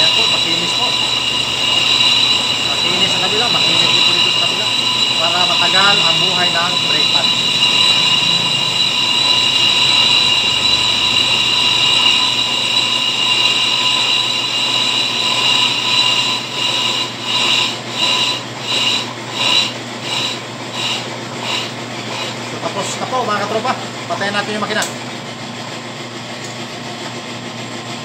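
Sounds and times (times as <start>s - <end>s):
high-pitched squeal of cutting bit: 0.0s - 22.4s
brake lathe running hum: 0.0s - 22.6s.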